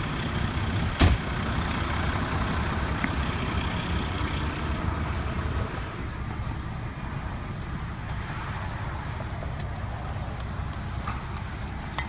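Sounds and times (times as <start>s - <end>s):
fire engine idling: 0.0s - 8.1s.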